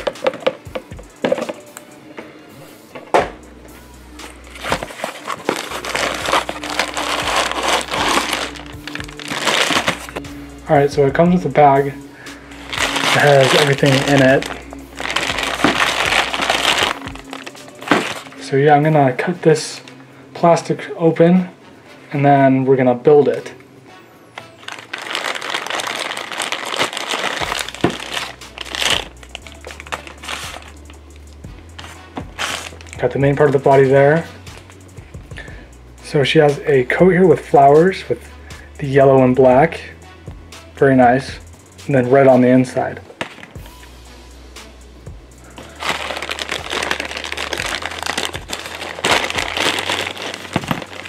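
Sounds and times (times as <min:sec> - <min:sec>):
cardboard and plastic rustling: 0:04.5 - 0:10.2, 0:12.6 - 0:18.5, 0:24.6 - 0:30.8, 0:31.8 - 0:33.8, 0:45.6 - 0:51.0
plastic bag crinkling: 0:04.5 - 0:10.2, 0:11.7 - 0:18.5, 0:24.6 - 0:30.9, 0:31.8 - 0:33.7, 0:45.6 - 0:51.0.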